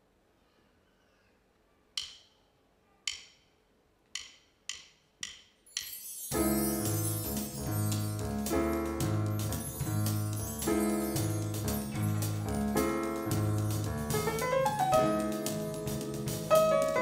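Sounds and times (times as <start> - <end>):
high struck ringing notes: 5.7 - 13.5
live band playing: 6.4 - 17.0.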